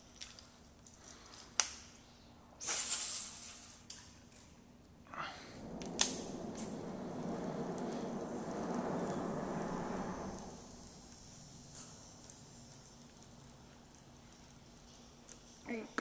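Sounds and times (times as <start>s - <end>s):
reel rushing noise: 5.1s - 12.2s.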